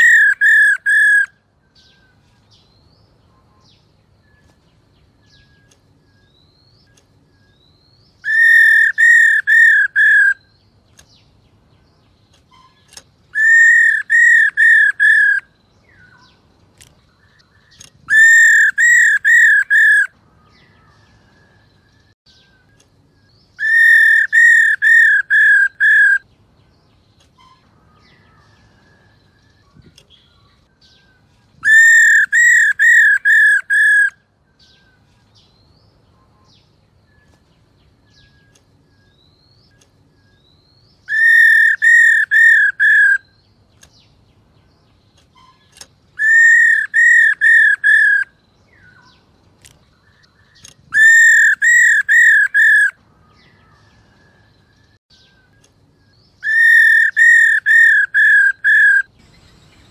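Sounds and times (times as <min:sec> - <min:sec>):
bird calling whistled notes: 0:00.0 - 0:02.2, 0:05.2 - 0:10.6, 0:12.5 - 0:16.3, 0:17.2 - 0:20.1, 0:23.5 - 0:26.3, 0:27.4 - 0:35.0, 0:38.1 - 0:43.4, 0:45.3 - 0:49.1, 0:50.5 - 0:53.0, 0:56.3 - 0:59.9.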